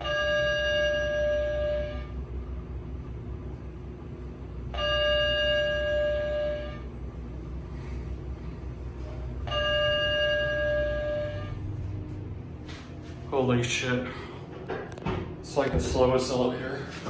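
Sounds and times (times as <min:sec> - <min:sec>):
elevator chime: 0:00.0 - 0:02.2, 0:04.7 - 0:06.9, 0:09.4 - 0:11.8
elevator low hum: 0:00.0 - 0:17.0.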